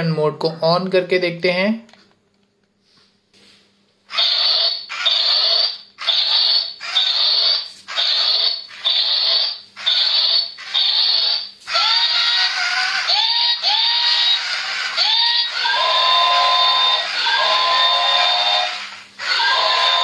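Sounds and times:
toy robot short pulsing bursts: 4.1 - 20.0.

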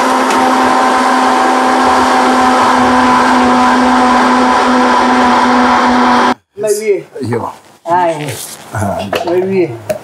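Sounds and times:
blender running: 0.0 - 6.4.

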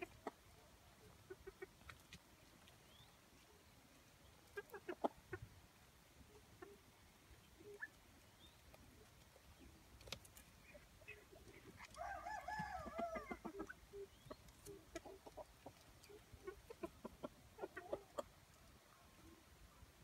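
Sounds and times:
chickens clucking softly: 0.0 - 20.0
chicken drawn-out call: 11.8 - 14.1.

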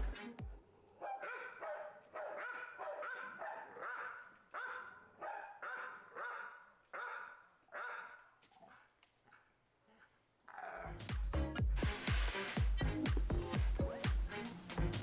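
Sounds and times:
dog barking: 1.0 - 10.9.

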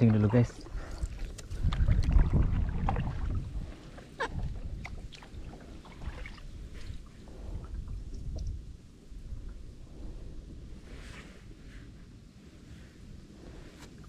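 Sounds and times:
water sloshing: 0.0 - 8.6
wind rumble on microphone: 0.0 - 14.0.

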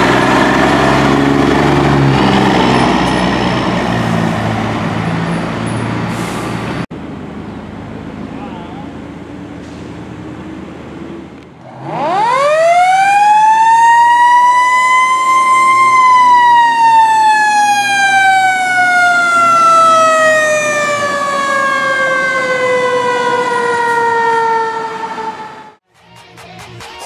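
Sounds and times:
mechanical fire truck siren: 11.7 - 25.8.

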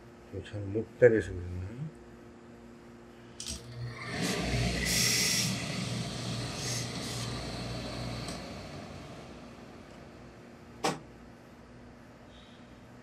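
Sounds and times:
low hum: 3.4 - 10.7
steam hissing: 3.9 - 10.0.

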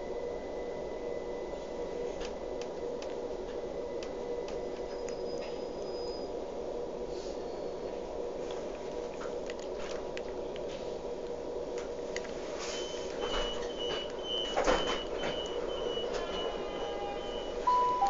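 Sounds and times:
train hum: 0.0 - 18.0
door warning beeps: 12.7 - 18.0.

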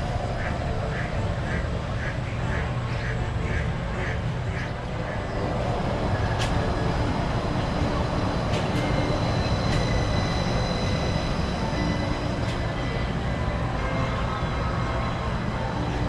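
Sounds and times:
monorail train rumbling past: 0.0 - 16.0
high whine: 4.8 - 16.0.

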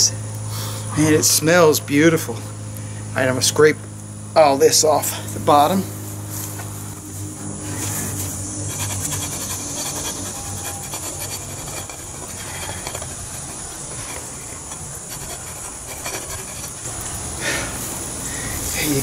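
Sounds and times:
scraper rasping across wax: 7.7 - 16.9.

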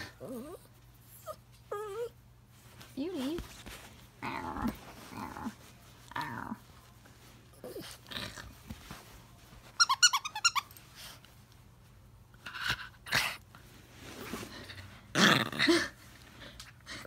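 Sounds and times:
dog growling: 0.0 - 0.6, 4.2 - 6.7
dog yipping: 9.8 - 10.7.

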